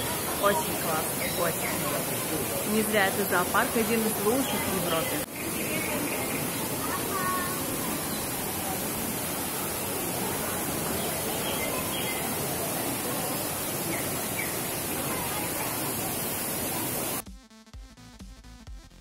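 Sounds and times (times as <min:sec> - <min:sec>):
falling water rushing: 0:00.0 - 0:17.2
electronic music with a beat: 0:17.2 - 0:19.0.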